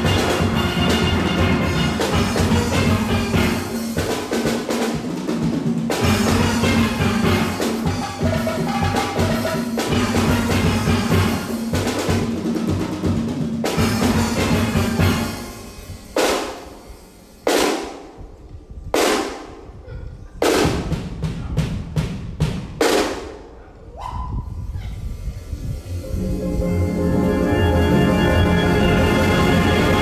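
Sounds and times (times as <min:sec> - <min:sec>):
drum kit hits: 0:00.0 - 0:16.8
steel band playing: 0:00.0 - 0:17.7, 0:25.9 - 0:30.0.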